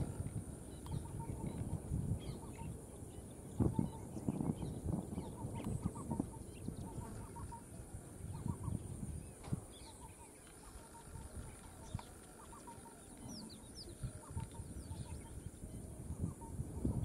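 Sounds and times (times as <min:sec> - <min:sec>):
birds chirping and clucking: 0:05.2 - 0:15.4.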